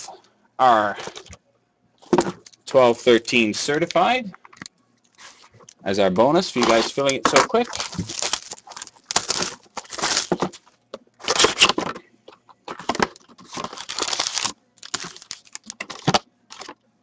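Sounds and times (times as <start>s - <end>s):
foil pack rustling: 5.1s - 5.7s, 6.4s - 11.9s, 12.7s - 16.8s
cellophane crinkling: 5.1s - 5.8s, 6.4s - 11.8s, 12.7s - 16.8s
cardboard box opening: 6.6s - 10.6s.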